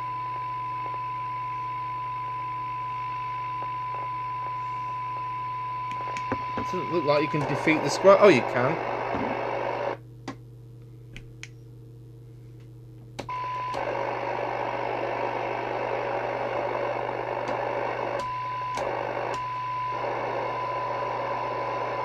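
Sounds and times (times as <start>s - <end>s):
radio test tone: 0.0s - 10.0s, 13.3s - 22.0s
low hum: 0.0s - 22.0s
radio receiver hiss: 5.9s - 10.0s, 13.3s - 22.0s.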